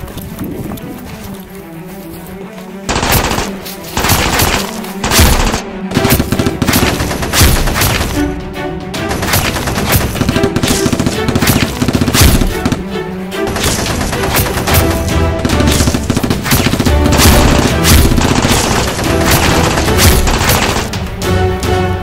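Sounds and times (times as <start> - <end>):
background music: 0.0 - 22.0
machine-gun-like gunfire: 2.9 - 8.2, 9.1 - 12.8, 13.5 - 21.0.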